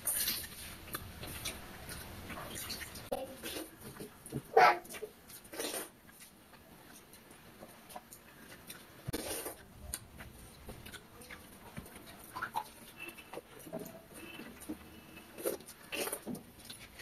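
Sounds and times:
wet noise: 0.0s - 7.3s
chewing and mouth sounds: 0.0s - 17.0s
fingers working wet rice in bowls: 0.0s - 17.0s.

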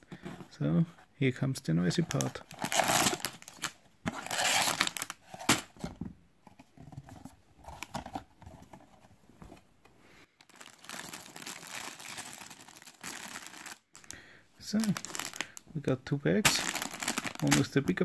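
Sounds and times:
plastic bags of bricks crinkling: 2.0s - 5.4s, 10.4s - 18.0s.

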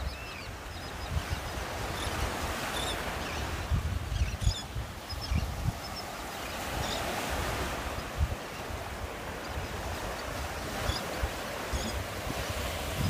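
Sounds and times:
faint high bird calls: 0.0s - 7.2s, 9.3s - 12.1s
small waves breaking on beach: 0.0s - 13.0s
wind buffeting microphone: 0.0s - 13.0s.

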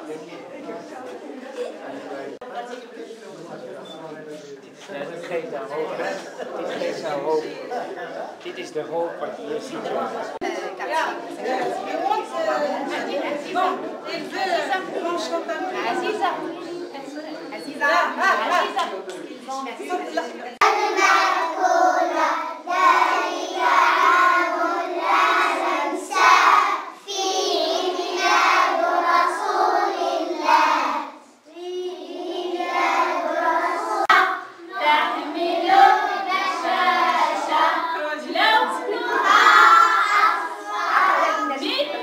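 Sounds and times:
children singing together: 20.6s - 38.0s, 38.6s - 41.4s.

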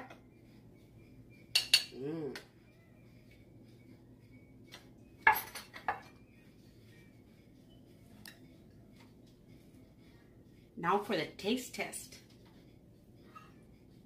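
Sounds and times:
spoon clinking on ceramic plate: 1.5s - 2.0s
person humming: 1.9s - 2.6s.

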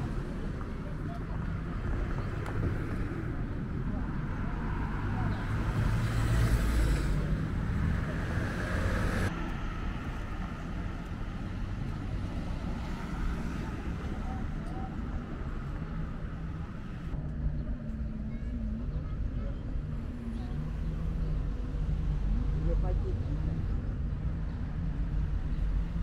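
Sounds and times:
cars passing: 0.0s - 17.4s
steady traffic hum: 0.0s - 26.0s.

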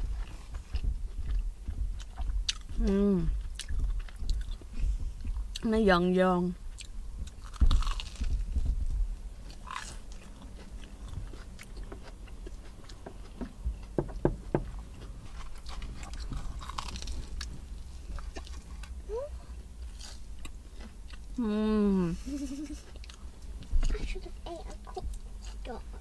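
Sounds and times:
crunchy chewing: 0.0s - 5.6s, 6.6s - 8.8s, 9.4s - 14.0s, 14.6s - 21.4s.

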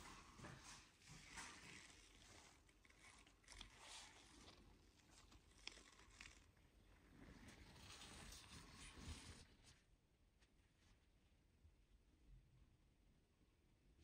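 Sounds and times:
rustling: 0.0s - 11.2s.

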